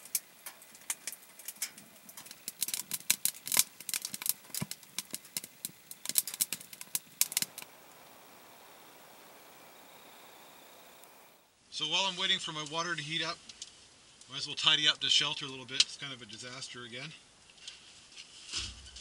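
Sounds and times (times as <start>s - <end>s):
wood fire crackling and popping: 0.0s - 11.5s, 12.5s - 16.1s
faint steady hiss: 0.0s - 19.0s.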